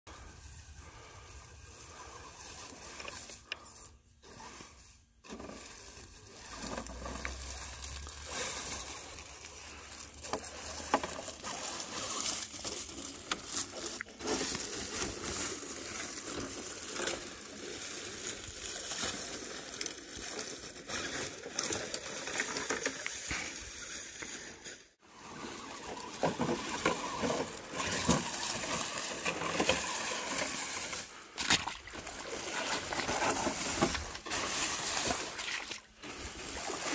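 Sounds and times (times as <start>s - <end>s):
leaves crunching under tyres: 0.1s - 36.9s.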